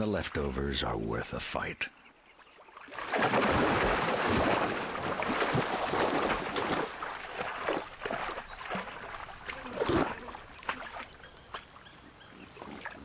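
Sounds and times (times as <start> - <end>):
water lapping: 2.2 - 13.0
crocodiles splashing in water: 2.8 - 11.2.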